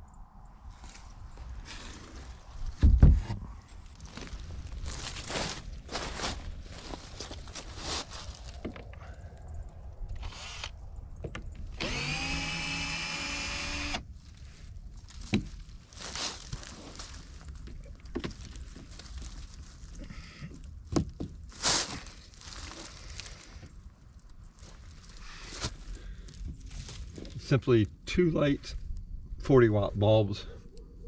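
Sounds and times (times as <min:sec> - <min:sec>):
rustling of dry stems: 0:00.6 - 0:02.8, 0:03.4 - 0:10.9, 0:14.1 - 0:27.8
small electric motor whirring: 0:10.2 - 0:10.8, 0:11.8 - 0:14.0.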